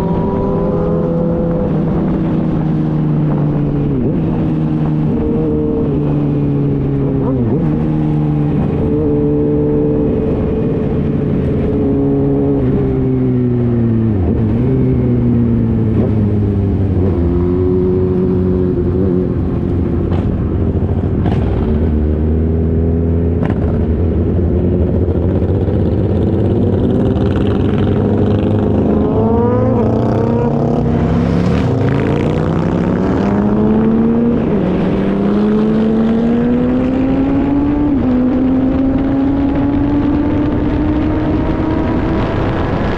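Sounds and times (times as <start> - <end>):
motorcycle engine shifting gears: 0.0 - 42.9
wind noise: 0.0 - 42.9.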